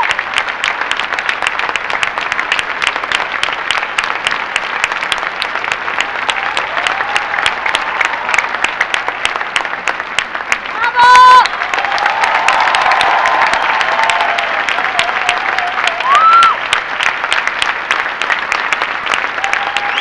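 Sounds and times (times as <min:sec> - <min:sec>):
audience applauding: 0:00.0 - 0:20.0.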